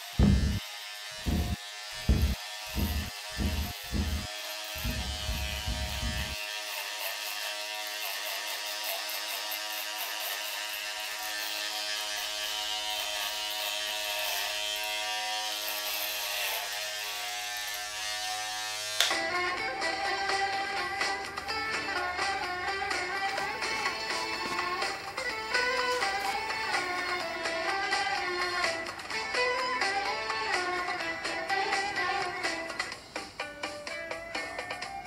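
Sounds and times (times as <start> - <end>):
low pulses: 0.2 - 0.6, 1.3 - 6.4.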